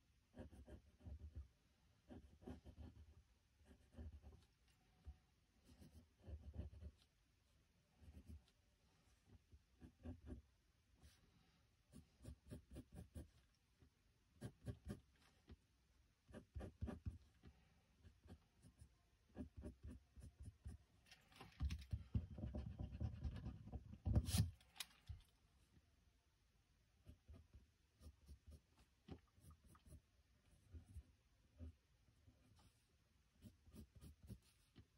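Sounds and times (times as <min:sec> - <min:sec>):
pencil scratching on paper: 0:00.3 - 0:04.6, 0:05.6 - 0:07.2, 0:08.0 - 0:10.4, 0:11.9 - 0:13.4, 0:14.4 - 0:15.4, 0:16.3 - 0:20.8, 0:27.0 - 0:34.9.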